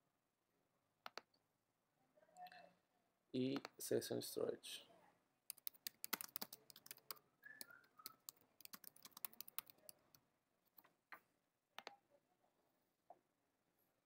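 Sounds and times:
typing on computer keyboard: 5.5s - 10.2s.

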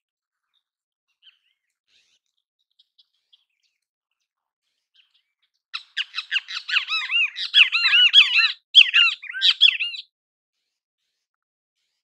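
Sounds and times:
bird calling: 5.8s - 10.0s.

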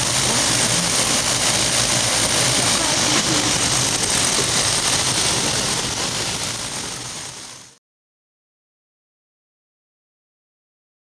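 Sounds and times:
train rumbling and rattling on track: 0.0s - 7.8s.

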